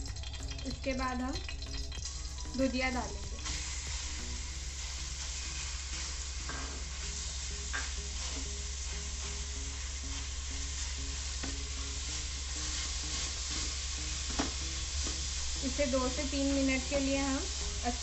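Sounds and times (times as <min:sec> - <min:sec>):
frying hiss: 0:00.0 - 0:18.0.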